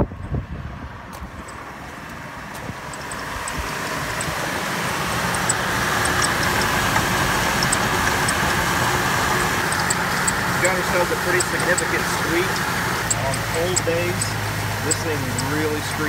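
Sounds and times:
car engine idling: 0.0s - 16.0s
pulley squeaking: 2.9s - 4.4s, 5.2s - 15.7s.

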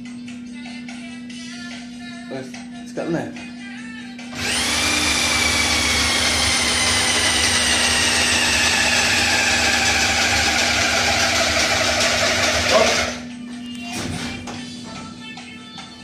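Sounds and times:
pneumatic rotary tool whining: 4.4s - 13.2s.

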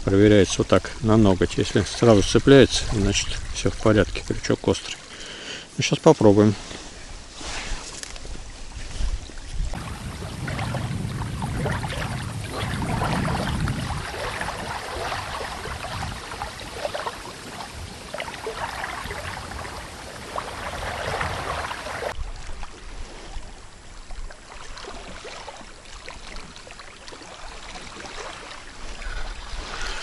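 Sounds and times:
river water splashing and trickling: 0.0s - 30.0s.

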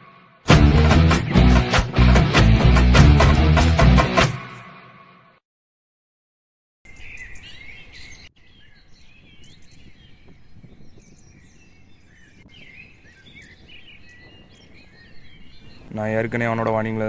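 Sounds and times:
outdoor background noise: 6.9s - 17.0s
small birds chirping: 6.9s - 17.0s.

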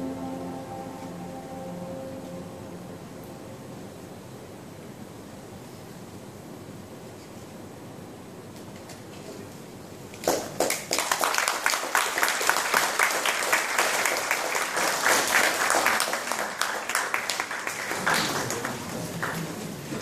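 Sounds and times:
audience applauding: 10.2s - 20.0s.

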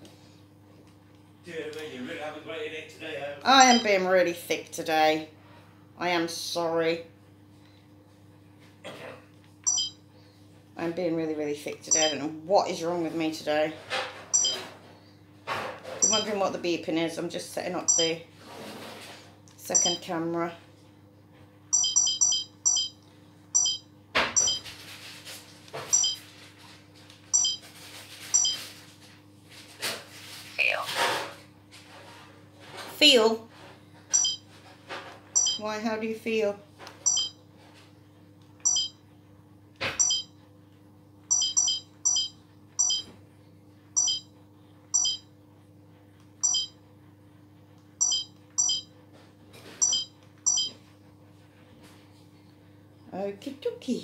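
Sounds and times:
faint steady hum: 0.0s - 18.4s, 19.5s - 25.0s, 32.2s - 54.0s
short high electronic beeps: 9.7s - 10.0s, 14.4s - 14.6s, 26.0s - 26.2s, 27.4s - 27.6s, 34.1s - 34.4s, 35.4s - 35.6s, 37.1s - 37.3s, 38.7s - 39.0s, 40.0s - 40.3s, 41.3s - 43.1s, 44.0s - 44.3s, 48.0s - 48.9s, 49.8s - 50.7s.

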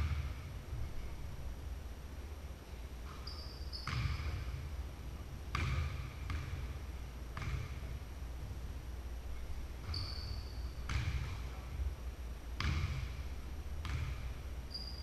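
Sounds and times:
basketball bouncing on hardwood floor: 3.8s - 4.6s, 5.5s - 6.7s, 7.4s - 7.8s, 9.8s - 11.6s, 12.6s - 13.2s, 13.8s - 14.3s
brief high squeak: 9.9s - 10.7s, 14.7s - 15.0s.

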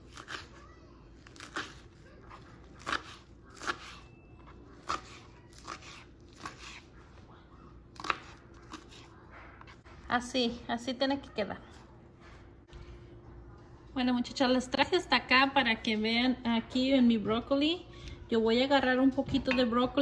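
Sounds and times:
knife chopping carrot on plastic board: 1.2s - 4.0s, 4.8s - 6.9s.

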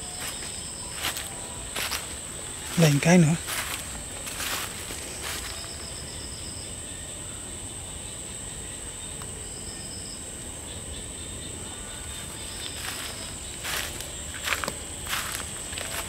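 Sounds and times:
footsteps on dry leaves: 0.0s - 6.0s, 12.2s - 16.0s
cricket trill: 0.0s - 16.0s
short pulsed insect chirp: 0.0s - 16.0s.

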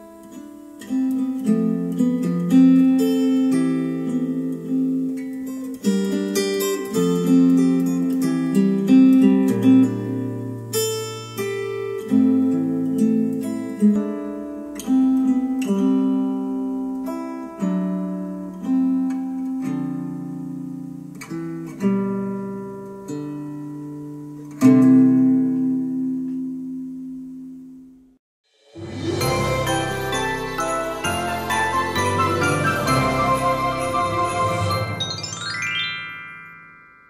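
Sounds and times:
acoustic guitar through speakers: 0.0s - 27.8s.

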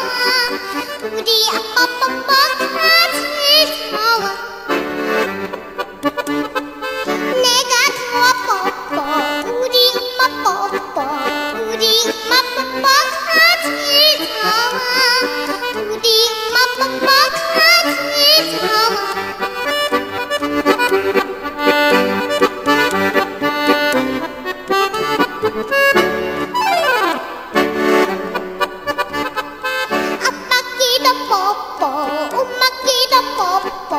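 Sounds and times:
girl singing with vibrato: 0.0s - 4.7s, 7.1s - 19.6s, 26.5s - 27.6s, 30.1s - 33.9s
lively instrumental music: 0.0s - 33.9s.

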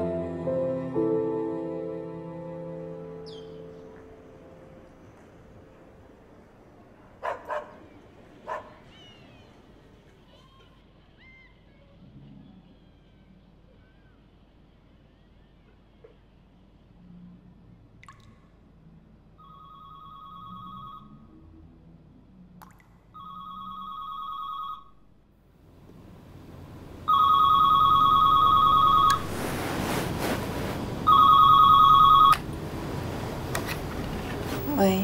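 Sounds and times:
telephone trilling ring: 19.4s - 21.2s, 23.2s - 24.9s, 27.1s - 29.3s, 31.1s - 32.4s.

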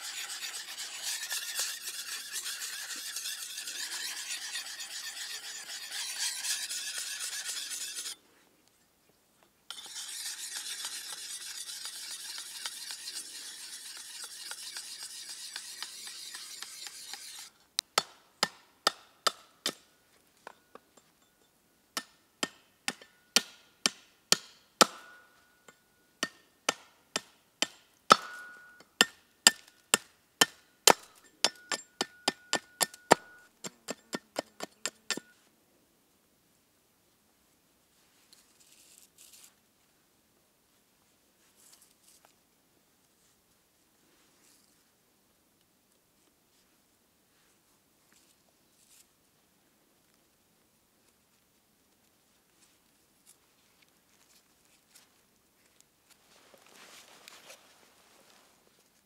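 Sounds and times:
rasping rubbing by hand: 0.0s - 8.2s, 9.7s - 17.5s.

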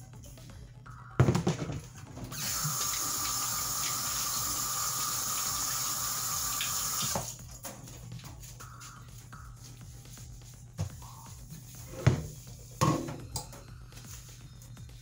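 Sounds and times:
faucet running into metal sink: 2.4s - 7.2s.

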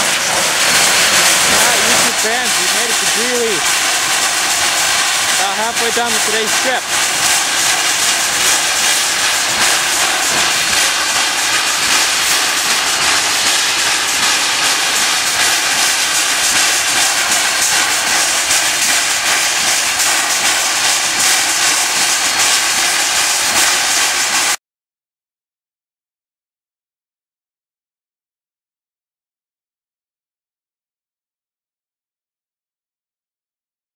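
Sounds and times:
steam hissing: 0.0s - 24.6s.

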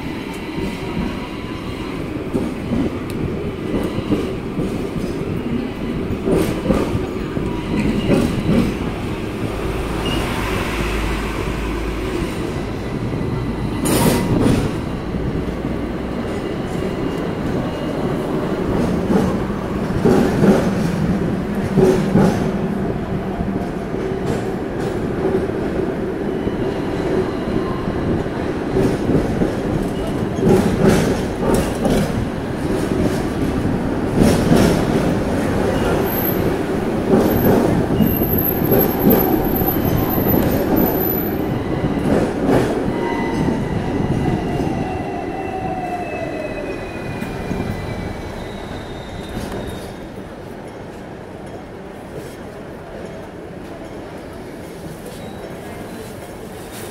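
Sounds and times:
tram rumbling on rails: 0.0s - 56.9s
tram wheels squealing: 3.8s - 19.4s, 34.2s - 50.3s, 55.0s - 56.0s.

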